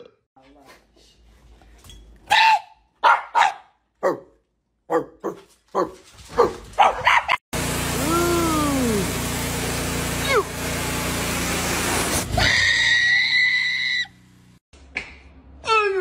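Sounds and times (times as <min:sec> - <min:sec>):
sprinkler spray hissing: 0:07.6 - 0:12.2.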